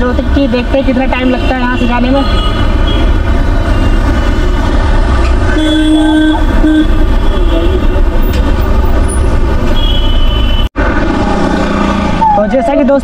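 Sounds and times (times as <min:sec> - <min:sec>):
street traffic: 0:00.0 - 0:13.0
vehicle horns: 0:01.2 - 0:08.3, 0:09.1 - 0:10.8.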